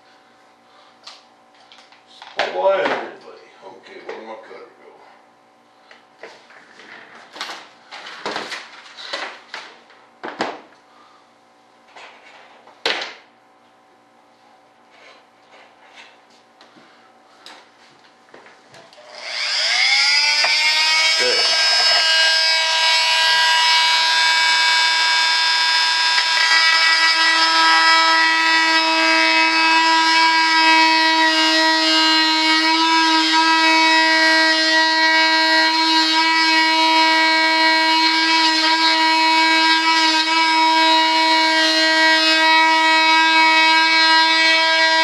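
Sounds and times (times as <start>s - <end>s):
rotary tool whining: 18.9s - 45.0s.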